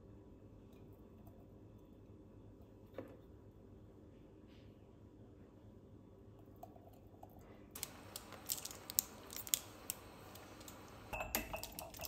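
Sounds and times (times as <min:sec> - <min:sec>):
low room hum: 0:00.0 - 0:12.0
jars and utensils clinking: 0:11.1 - 0:12.0.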